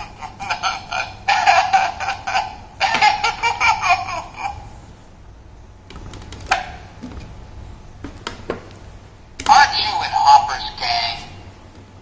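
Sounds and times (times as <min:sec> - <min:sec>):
toy speaker character voice: 0:09.4 - 0:11.4.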